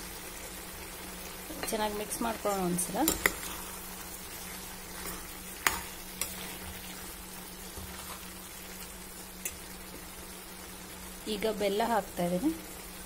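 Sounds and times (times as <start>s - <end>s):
low sizzle: 0.0s - 13.0s
spoon stirring in a pan: 1.6s - 10.1s.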